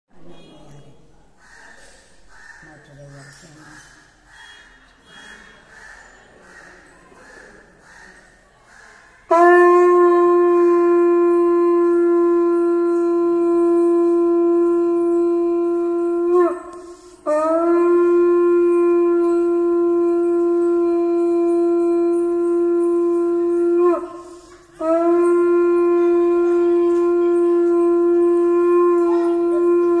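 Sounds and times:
conch shell trumpet blasts: 0:09.3 - 0:30.0.

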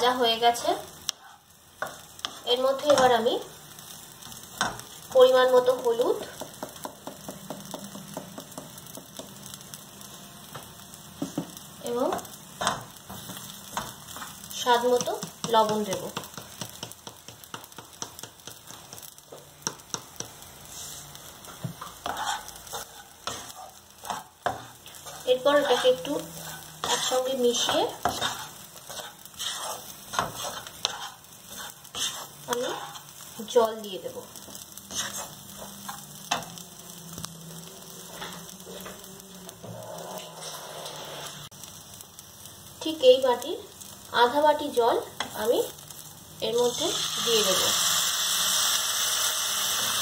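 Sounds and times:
food frying in oil: 0:00.0 - 0:50.0
wooden spatula scraping pan: 0:19.9 - 0:33.1, 0:34.4 - 0:36.5, 0:39.6 - 0:41.4.

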